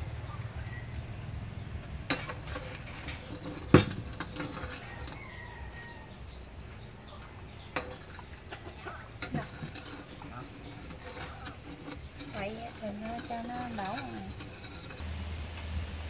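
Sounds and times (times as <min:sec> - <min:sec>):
metal spoon clinking ceramic bowl: 0:00.6 - 0:01.0.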